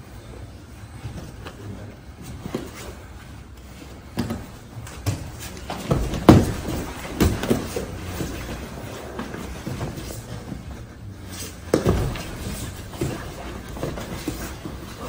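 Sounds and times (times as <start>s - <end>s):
bodies thudding on a foam mat: 4.1s - 10.7s, 11.6s - 15.0s.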